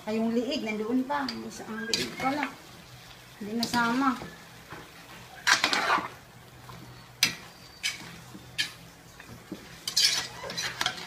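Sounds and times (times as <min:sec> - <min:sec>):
metal spoon scraping a steel pan: 0:05.4 - 0:06.2, 0:07.2 - 0:08.8, 0:09.8 - 0:11.0.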